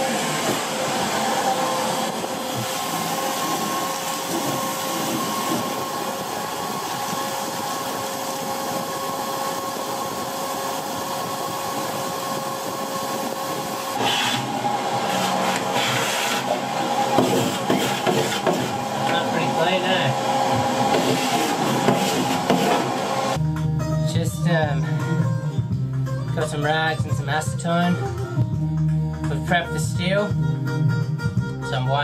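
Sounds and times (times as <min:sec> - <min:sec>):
shop vacuum motor whine: 0:00.0 - 0:23.4
hose sucking up grit: 0:13.0 - 0:23.4.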